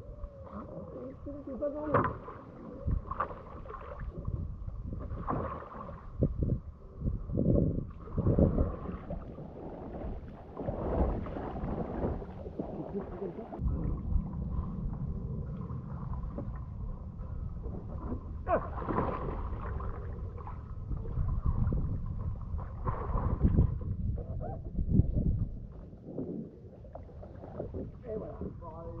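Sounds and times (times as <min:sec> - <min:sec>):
water splashing around kayak: 0:00.0 - 0:29.0
paddle strokes in water: 0:00.4 - 0:06.3, 0:07.8 - 0:24.3.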